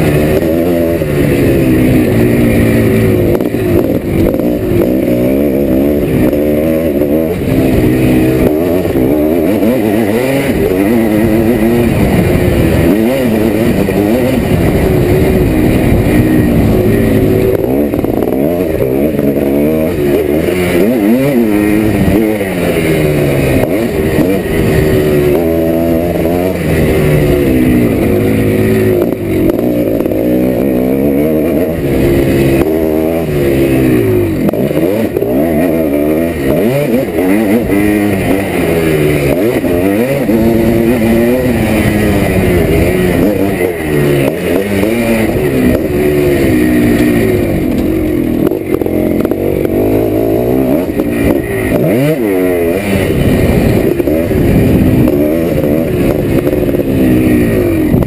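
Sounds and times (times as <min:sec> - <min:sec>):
two-stroke motorcycle engine revving: 0:00.0 - 0:58.0.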